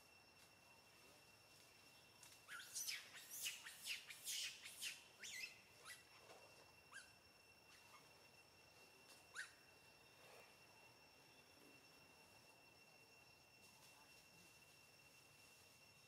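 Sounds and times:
faint bird chirping: 0:01.8 - 0:12.4.

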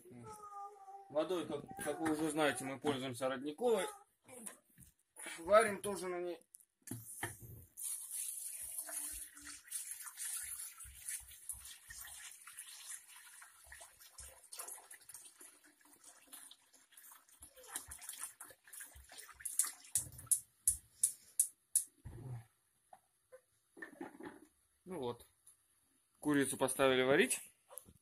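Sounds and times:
water pouring into metal pot: 0:07.7 - 0:20.4.

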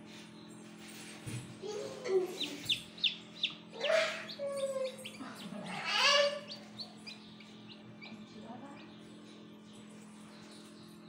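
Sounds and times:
steady low hum: 0:00.0 - 0:11.0
chicks peeping: 0:02.1 - 0:11.0.

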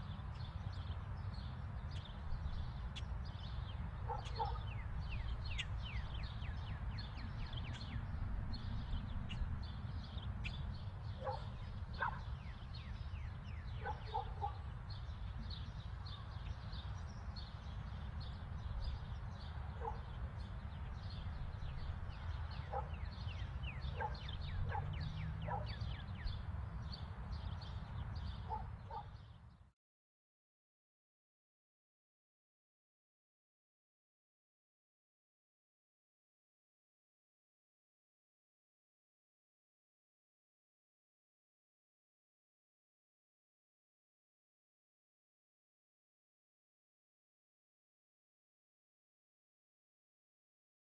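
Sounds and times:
birds chirping: 0:00.0 - 0:29.7
dog barking: 0:04.0 - 0:04.8, 0:11.2 - 0:12.3, 0:13.8 - 0:14.7, 0:19.8 - 0:20.1, 0:22.6 - 0:23.1, 0:23.8 - 0:25.8, 0:28.4 - 0:29.2.

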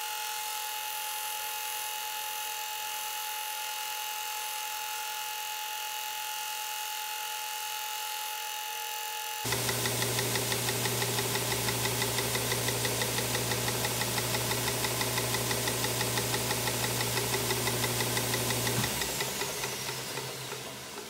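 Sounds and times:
edge sander running: 0:09.5 - 0:21.0
sander winding down: 0:09.5 - 0:21.0.

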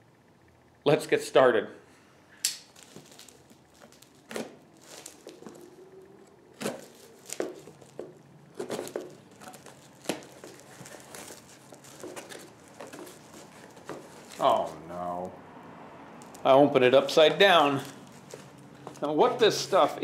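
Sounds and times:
cardboard and tape tearing: 0:02.7 - 0:05.6, 0:06.6 - 0:14.8.

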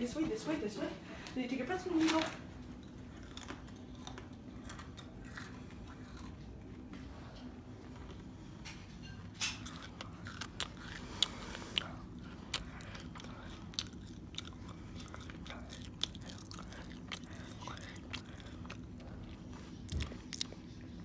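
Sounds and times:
person chewing crunchy pretzels: 0:02.9 - 0:07.0, 0:09.5 - 0:21.0.

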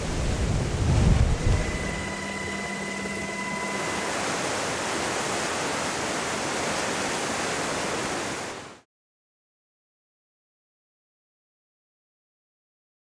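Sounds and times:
river rushing: 0:00.0 - 0:08.8
helicopter whine: 0:01.2 - 0:04.5.

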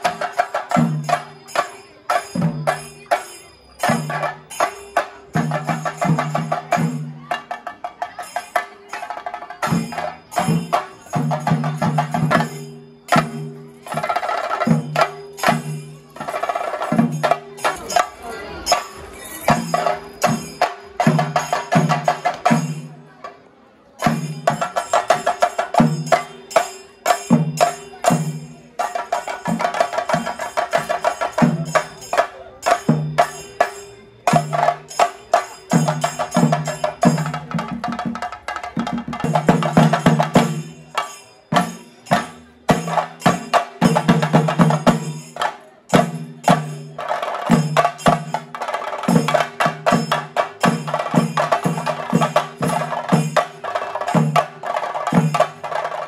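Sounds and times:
ringing hand cymbals: 0:00.0 - 0:56.0.

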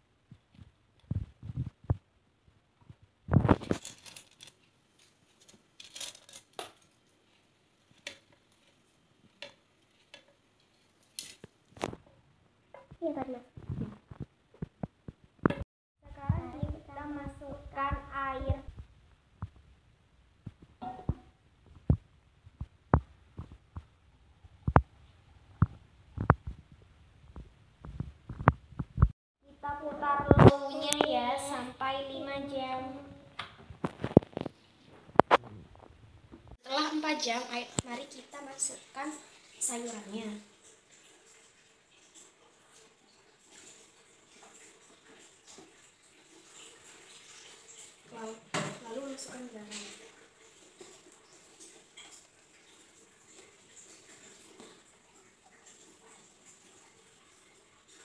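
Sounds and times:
water pouring: 0:37.8 - 0:58.0.

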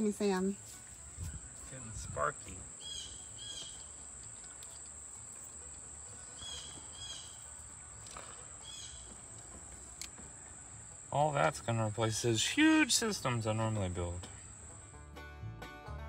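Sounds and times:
insect drone: 0:00.0 - 0:15.0
bird chirping: 0:01.4 - 0:10.7.

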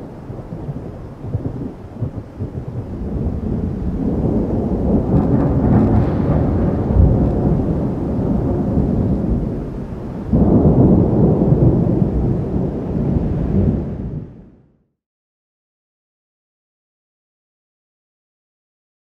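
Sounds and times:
thunder rumbling: 0:00.0 - 0:14.7.

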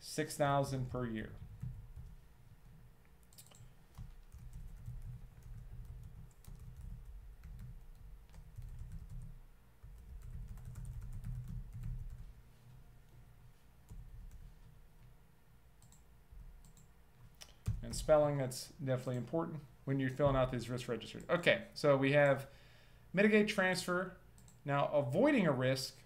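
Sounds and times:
typing on computer keyboard: 0:03.3 - 0:12.2.

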